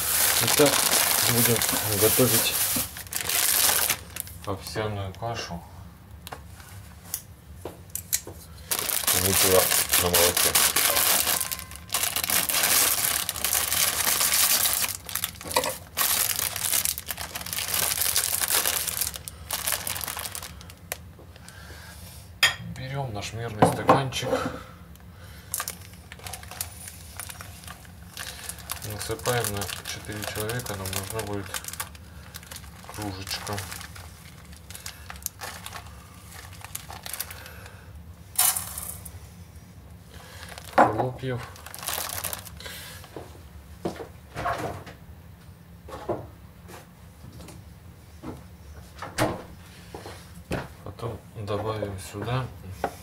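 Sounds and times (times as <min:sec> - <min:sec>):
oat flakes trickling into a mug: 0:00.0 - 0:04.4, 0:08.7 - 0:20.6, 0:25.6 - 0:37.5
plastic bag crinkling: 0:00.0 - 0:05.2, 0:08.6 - 0:21.1, 0:25.4 - 0:37.8, 0:40.1 - 0:43.1.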